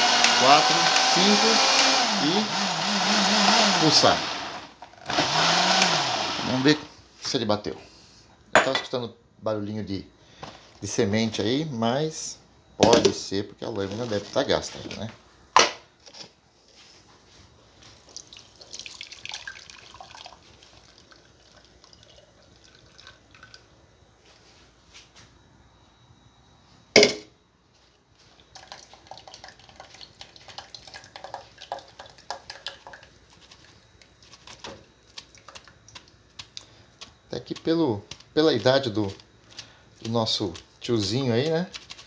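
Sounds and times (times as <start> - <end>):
juice dripping through strainer: 17.8 - 24.5, 28.2 - 42.0.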